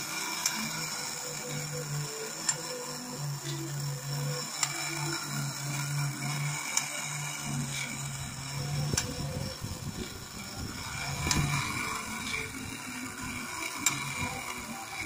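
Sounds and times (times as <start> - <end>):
toy mechanism humming: 0.0 - 15.0.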